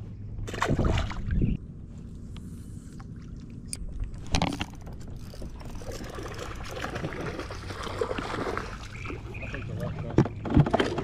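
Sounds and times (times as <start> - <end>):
water splashing: 3.1 - 10.2.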